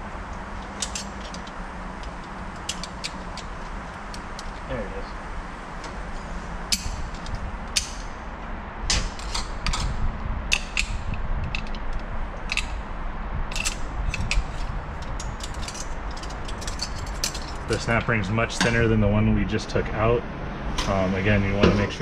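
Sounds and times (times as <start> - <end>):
steady low rumble: 0.0 - 22.0
sharp metallic clicks and scrapes: 0.3 - 4.7, 5.8 - 8.2, 8.9 - 12.8, 13.5 - 18.8.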